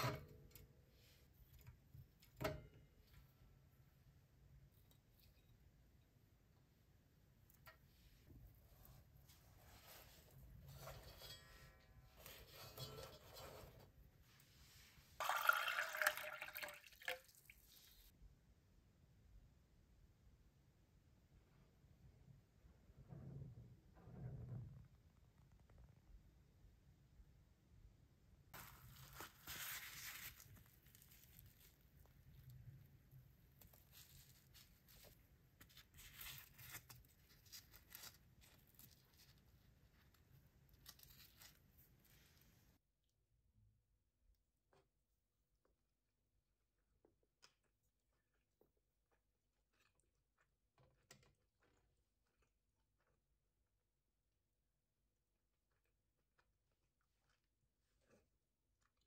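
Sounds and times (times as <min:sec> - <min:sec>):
faint handling sounds: 0:07.3 - 0:15.2, 0:28.6 - 0:42.8
water poured into metal tumbler: 0:15.2 - 0:18.1.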